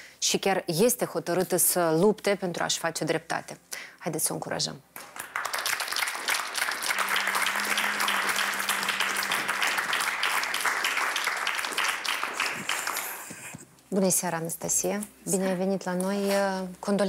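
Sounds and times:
audience applauding: 5.0s - 13.6s.

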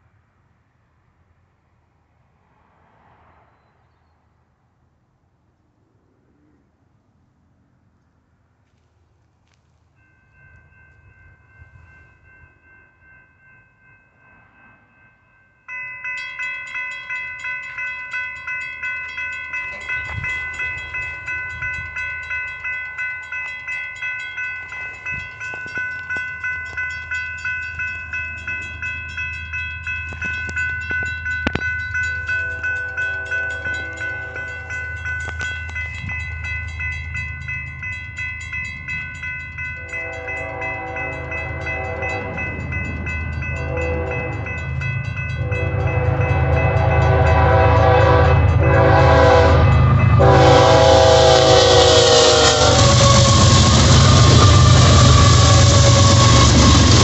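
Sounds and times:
railroad crossing bell dinging: 9.9s - 57.0s
train rumble: 15.7s - 57.0s
distant train horn: 32.2s - 34.8s, 39.9s - 42.7s, 43.4s - 44.6s, 45.4s - 57.0s.

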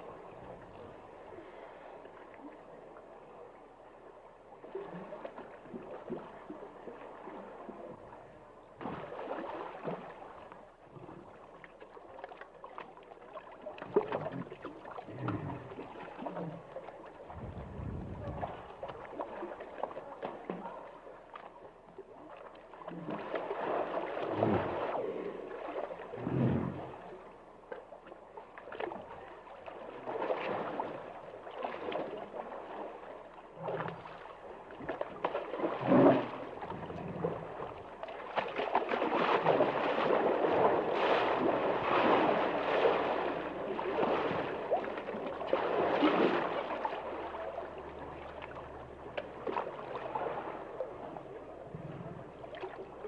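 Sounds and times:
water gurgling and sloshing: 0.0s - 53.0s.

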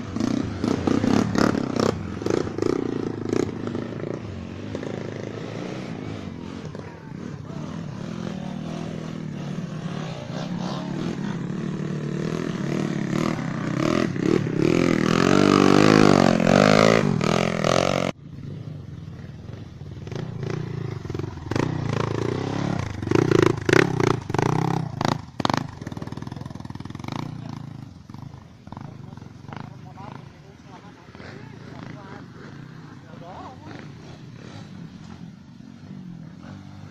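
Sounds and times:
dirt bike engine revving: 0.0s - 36.9s.

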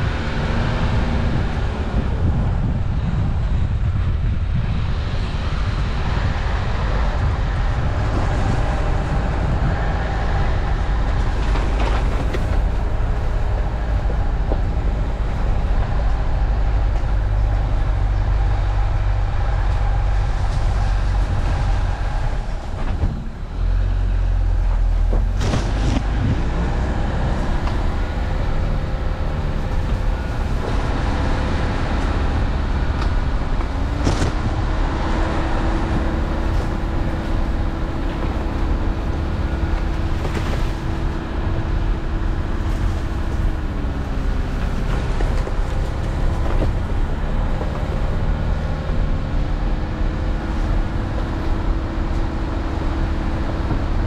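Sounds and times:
car engine and road rumble: 0.0s - 54.0s.

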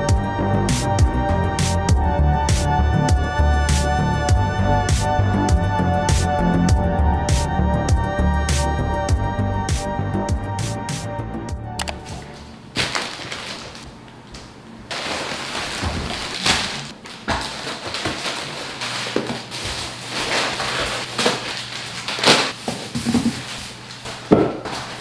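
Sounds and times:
plastic bags rustling: 12.0s - 25.0s
items knocking on stone countertop: 24.3s - 24.8s.

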